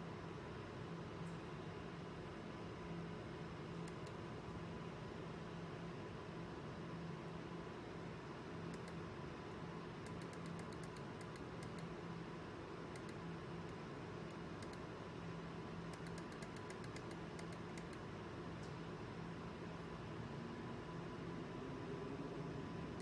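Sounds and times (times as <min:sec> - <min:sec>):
steady low hum: 0:00.0 - 0:23.0
mouse and keyboard clicks: 0:08.7 - 0:09.0, 0:10.0 - 0:11.9, 0:13.0 - 0:13.2, 0:14.3 - 0:14.9, 0:15.9 - 0:18.0.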